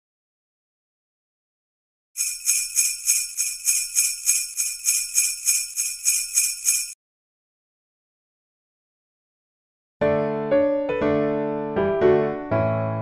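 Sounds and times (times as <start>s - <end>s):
jingle bells shaken: 2.2s - 7.0s.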